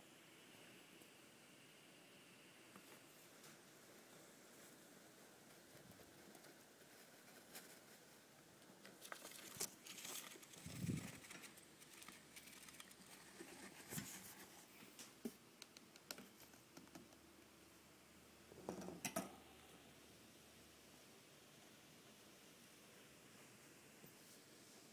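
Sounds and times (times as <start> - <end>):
paper crinkling and rustling: 8.8 - 15.0.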